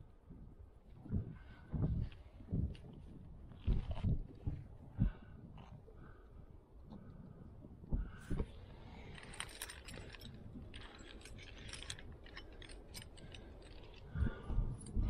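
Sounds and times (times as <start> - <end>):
carabiners clinking and jangling: 8.4 - 15.0.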